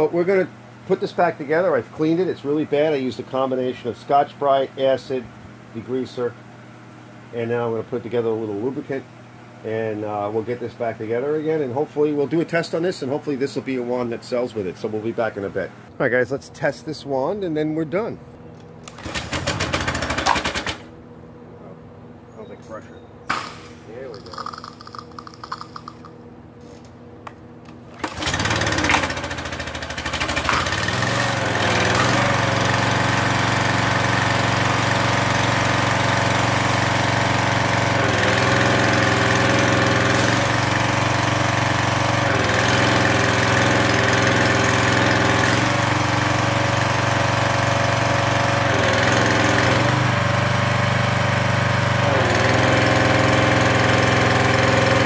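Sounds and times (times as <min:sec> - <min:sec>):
pressure washer engine running: 0:18.9 - 0:20.9, 0:23.4 - 0:26.1, 0:28.0 - 0:55.0.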